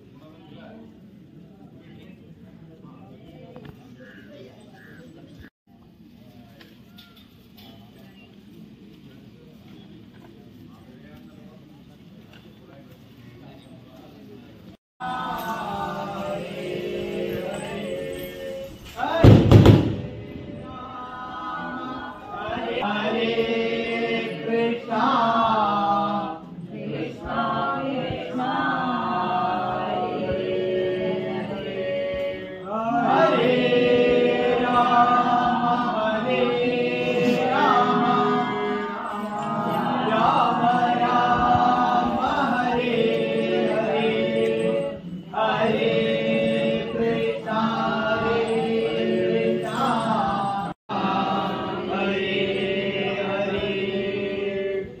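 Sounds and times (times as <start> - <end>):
devotional chanting with music: 15.0 - 55.0.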